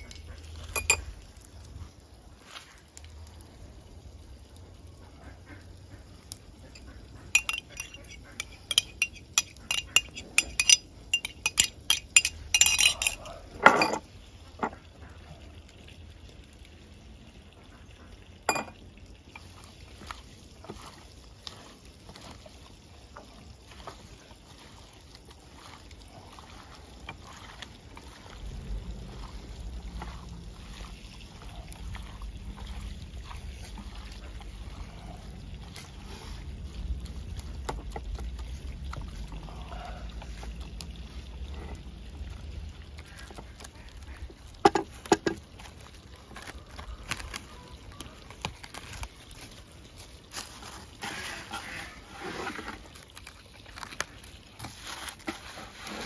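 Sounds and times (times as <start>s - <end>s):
dishes and utensils clinking: 0.0s - 1.1s, 6.7s - 14.7s, 18.5s - 18.8s
low steady rumble: 20.8s - 44.5s.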